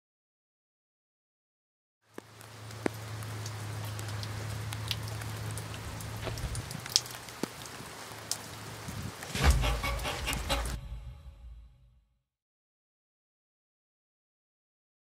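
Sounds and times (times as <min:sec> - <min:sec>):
steady hiss with light ticks: 0:02.1 - 0:09.3.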